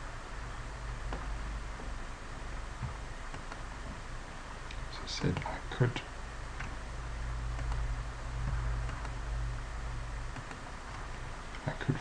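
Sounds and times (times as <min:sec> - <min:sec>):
low steady hum: 0:00.0 - 0:12.0
computer mouse clicks: 0:03.3 - 0:03.7, 0:04.7 - 0:05.5, 0:07.5 - 0:07.9, 0:08.5 - 0:09.2, 0:10.3 - 0:11.7.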